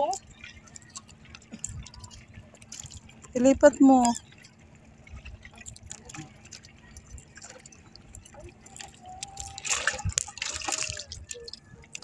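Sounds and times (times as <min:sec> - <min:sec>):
seawater dripping and splashing: 0:00.0 - 0:12.0
loud water splashes: 0:05.1 - 0:12.0.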